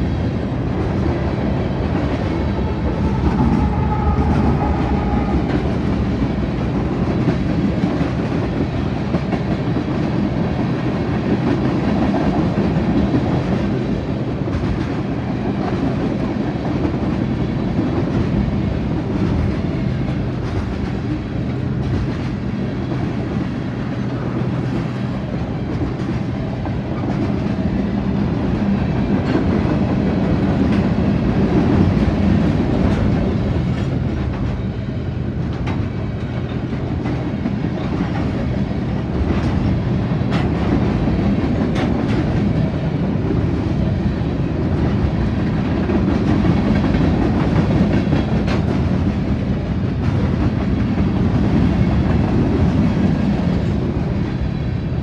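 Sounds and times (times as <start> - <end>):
freight train rumbling past: 0.0 - 55.0
wheels clacking over rail joints: 35.4 - 54.2.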